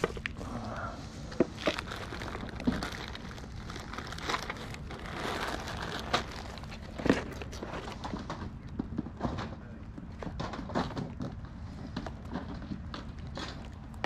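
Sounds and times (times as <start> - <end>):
plastic bags crinkling: 0.0 - 0.6, 1.2 - 8.7.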